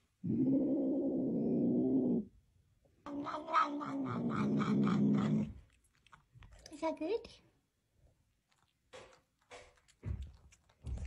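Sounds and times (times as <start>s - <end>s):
cat growling: 0.2s - 2.3s, 3.1s - 5.6s
cat crunching dry kibble: 5.6s - 6.8s, 8.4s - 11.0s.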